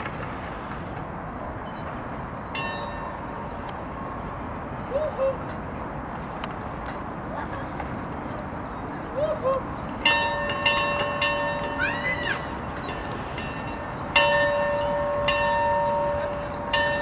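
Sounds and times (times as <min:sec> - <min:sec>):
bell ringing: 0:10.1 - 0:17.0.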